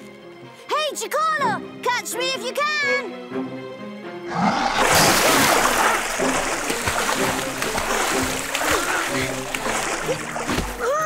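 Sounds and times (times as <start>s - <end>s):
background music: 0.0s - 11.0s
crocodile splashing in water: 4.3s - 11.0s.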